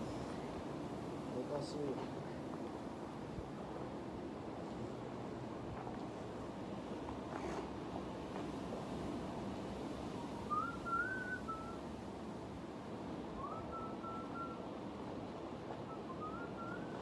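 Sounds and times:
steady background hiss: 0.0 - 17.0
whistled phrase: 10.5 - 11.8, 13.4 - 14.6, 15.9 - 17.0.

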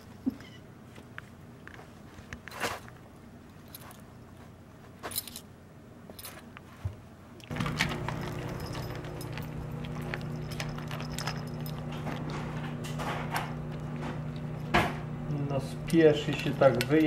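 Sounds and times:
steady hum with sharp clicks: 7.4 - 17.0
collar tags and bell jingling: 7.6 - 12.3.

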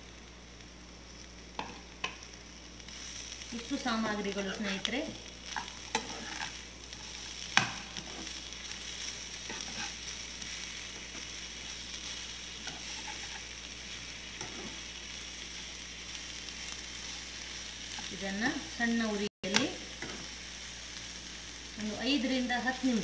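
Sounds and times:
faint sizzle: 0.0 - 23.0
spoon scraping in a pan: 4.0 - 15.0, 19.5 - 20.4.

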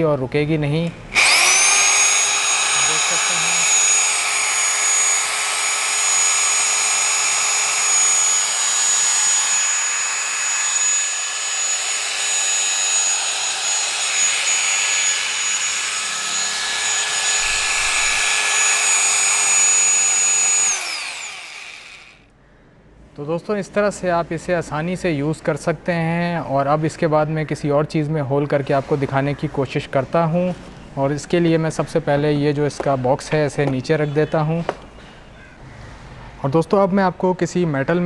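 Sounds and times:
electric motor whine: 1.1 - 22.2.

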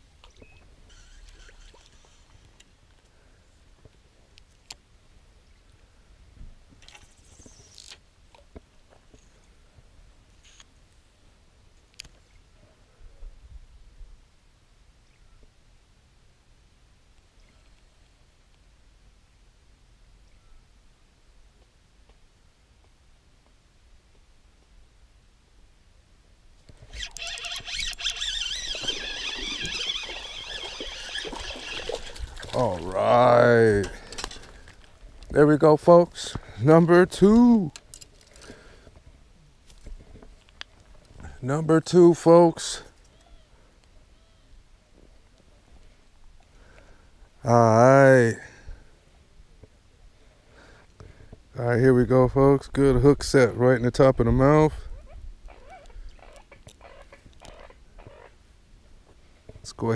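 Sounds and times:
reel rushing whir: 26.8 - 32.6
fishing reel clicks: 26.9 - 32.1.

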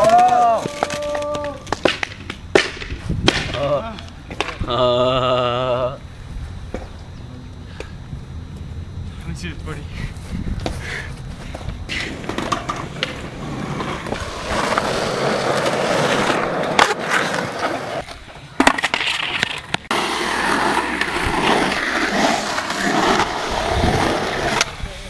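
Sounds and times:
skateboard clacking on concrete: 0.0 - 4.7, 11.9 - 24.8
skateboard wheels rolling on concrete: 0.0 - 25.0.

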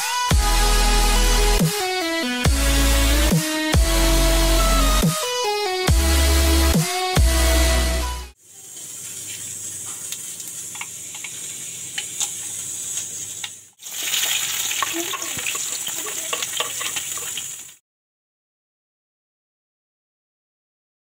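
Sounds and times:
electronic music: 0.0 - 8.4
hot oil sizzling and crackling: 8.4 - 17.8.

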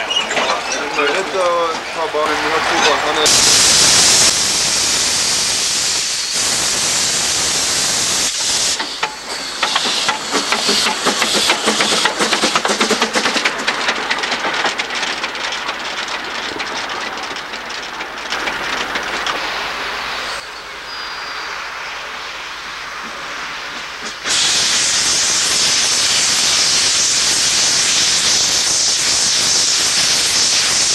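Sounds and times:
train wheels clicking over rail joints: 0.0 - 20.4
steam venting hiss: 2.2 - 13.6, 18.6 - 30.9.

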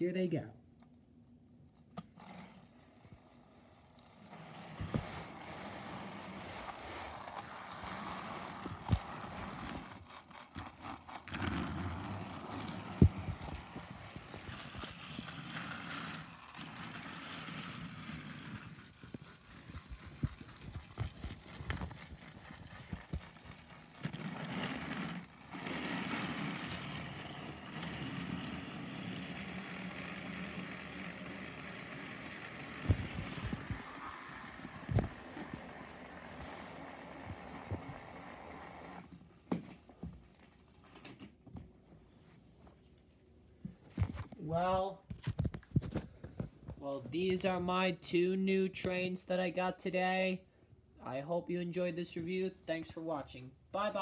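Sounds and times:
toy train motor whir: 2.0 - 39.1
toy train wheels rattling: 13.4 - 37.6.

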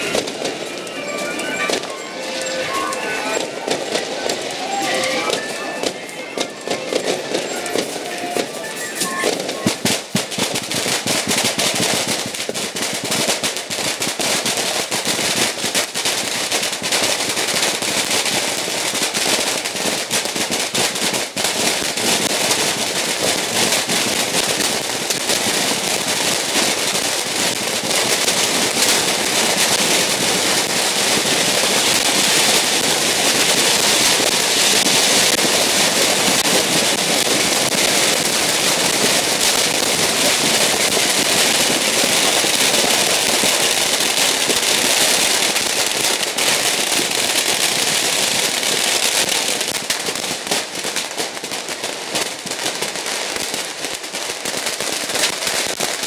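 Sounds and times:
firecrackers crackling: 0.0 - 56.0.

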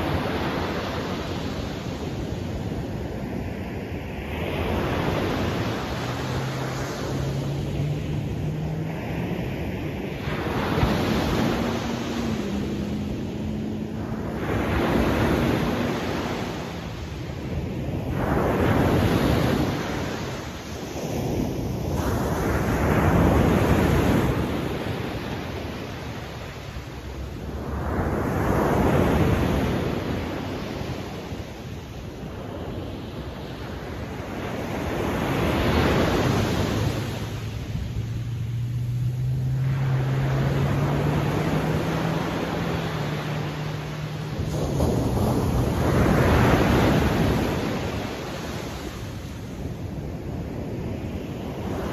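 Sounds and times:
ocean waves breaking on beach: 0.0 - 51.9.

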